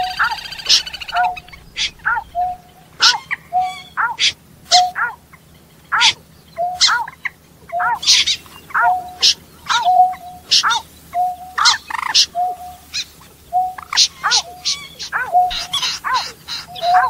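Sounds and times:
sharp high bird chirps: 0.0 - 5.0
falling bird calls: 0.0 - 17.0.

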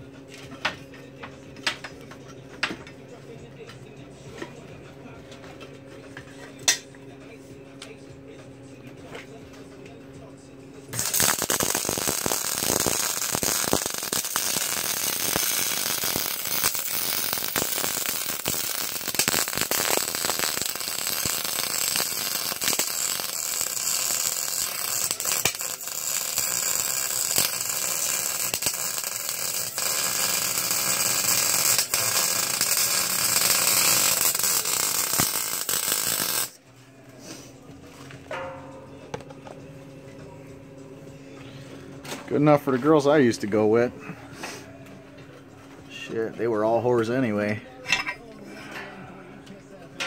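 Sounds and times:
welder arc crackling: 10.9 - 36.6.

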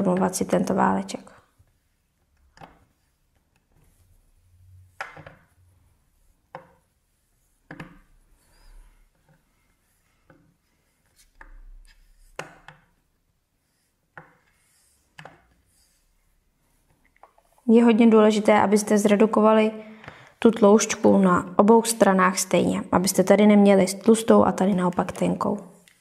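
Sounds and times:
soft taps and rubs on clay: 1.5 - 17.7.

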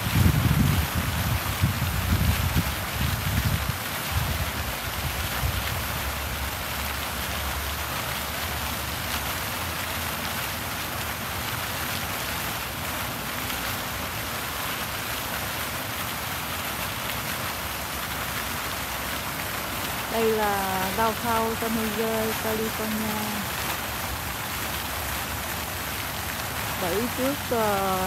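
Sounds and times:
wind rumble on microphone: 0.0 - 6.1
fountain water splashing: 0.0 - 28.0.

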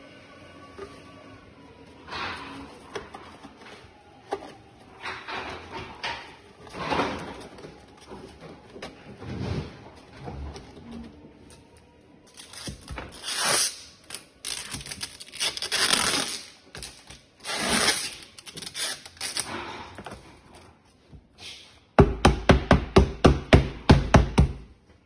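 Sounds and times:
packing tape ripping off roll: 12.3 - 19.8
hammer knocking on tubes: 22.0 - 24.7.

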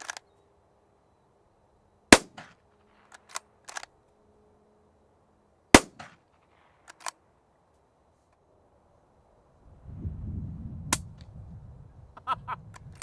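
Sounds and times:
rifle shots: 2.1 - 3.8, 5.7 - 7.1
rifle bolt clicks: 3.1 - 3.9, 6.9 - 7.2.

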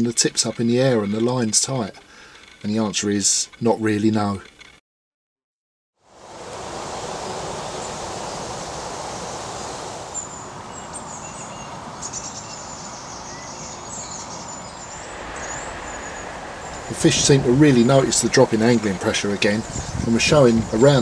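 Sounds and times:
small birds chirping: 7.2 - 21.0
steady rushing background: 14.0 - 20.9.

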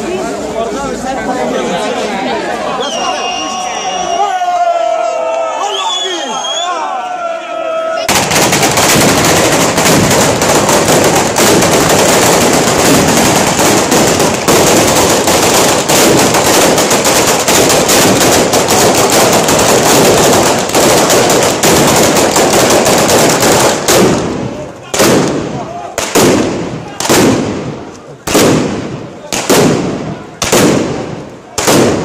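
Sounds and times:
firecrackers crackling: 8.0 - 32.0.

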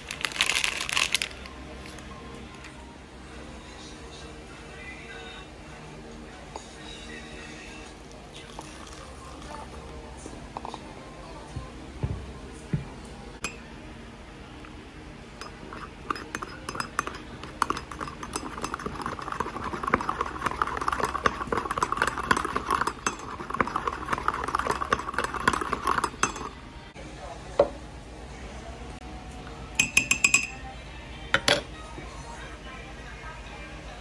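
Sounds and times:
teaspoon clinking in a mug: 8.3 - 9.8, 15.4 - 26.6, 29.8 - 30.6
spoon tap on mug: 29.8 - 30.6.

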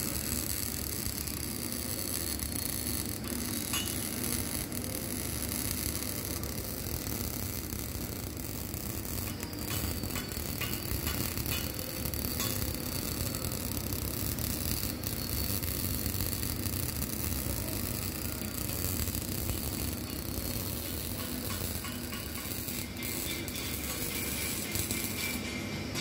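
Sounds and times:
welding arc crackling: 0.0 - 26.0.

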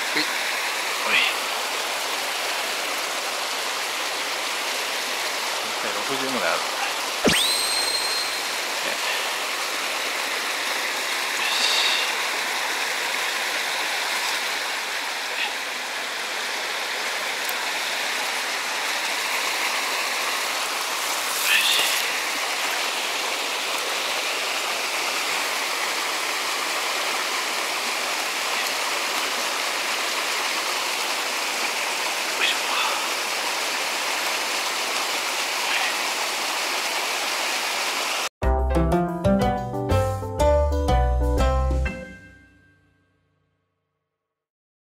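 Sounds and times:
flowing water rushing: 0.0 - 38.3
short high-pitched calls: 7.2 - 8.6.

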